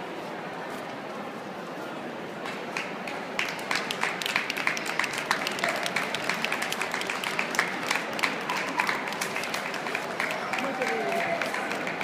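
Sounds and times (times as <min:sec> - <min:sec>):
crowd murmur: 0:00.0 - 0:12.0
spectators applauding: 0:02.8 - 0:12.0.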